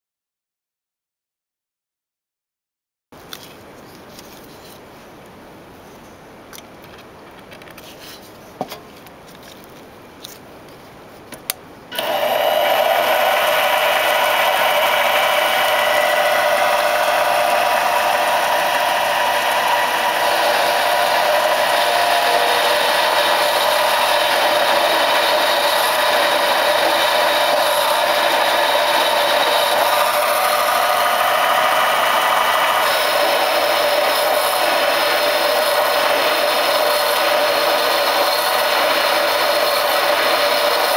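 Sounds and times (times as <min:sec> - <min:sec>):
lathe motor whirring: 0:11.9 - 0:40.9.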